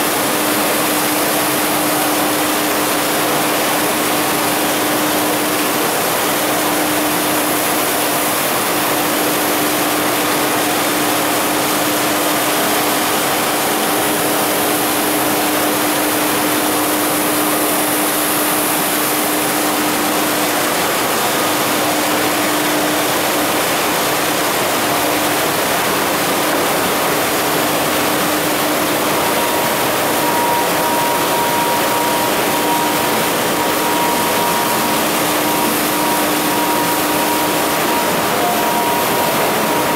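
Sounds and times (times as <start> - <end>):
industrial machinery din: 0.0 - 39.9
higher steady tone: 28.5 - 39.9.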